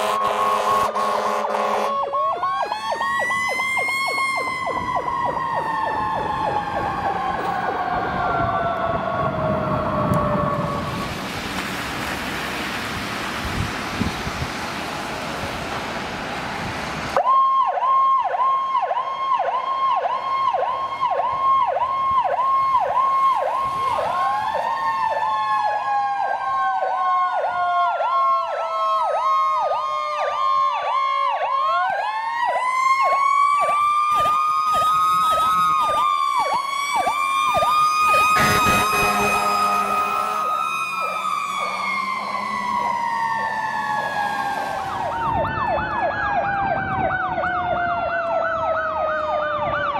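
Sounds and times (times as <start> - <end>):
horn blast: 0.0 - 2.0, 38.3 - 43.1
electronic siren yelp: 0.0 - 11.1, 17.2 - 49.9
rising and falling siren: 0.0 - 49.9.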